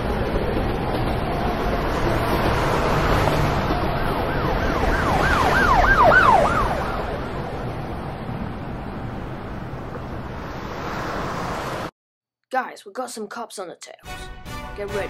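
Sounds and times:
steady rushing noise: 0.0s - 11.9s
emergency siren yelping: 1.2s - 8.0s.

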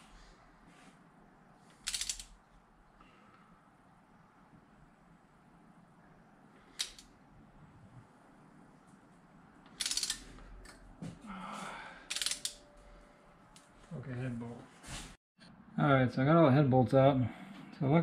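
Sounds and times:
ratchet wrench pawl clicking: 1.8s - 2.3s, 9.8s - 10.2s, 12.1s - 12.6s.

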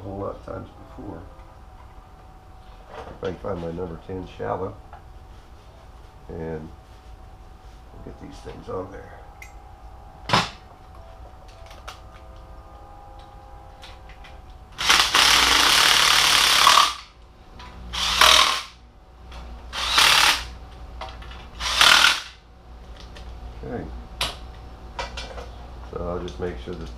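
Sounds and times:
impact driver running: 14.8s - 17.1s, 17.9s - 18.8s, 19.8s - 20.6s, 21.6s - 22.4s.

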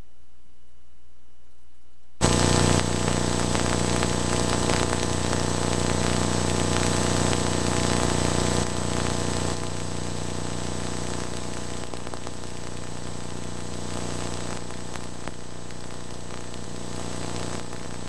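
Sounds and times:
thin high whine: 2.2s - 11.8s
static hiss: 2.2s - 18.0s
steady hum: 2.2s - 18.0s.

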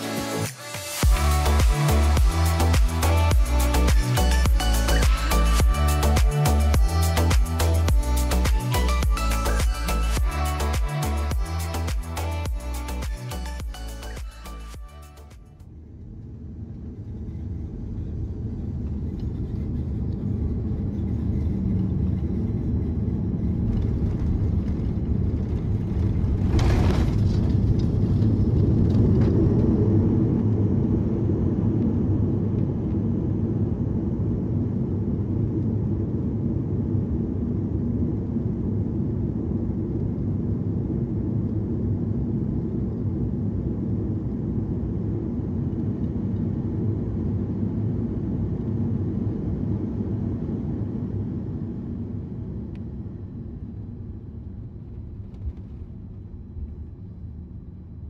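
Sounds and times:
airliner cabin rumble: 15.7s - 58.0s.

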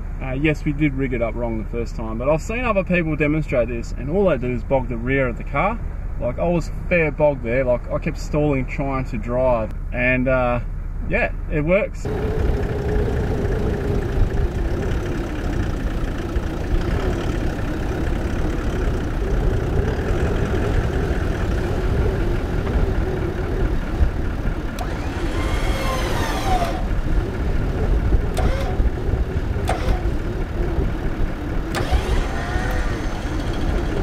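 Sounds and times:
car engine idling: 12.0s - 34.0s
wind rumbling on microphone: 12.0s - 34.0s.

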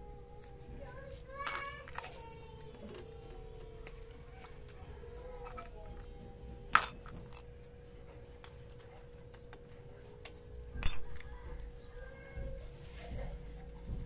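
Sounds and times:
metal wrench clinking on bolts: 6.8s - 7.6s, 10.8s - 11.3s.

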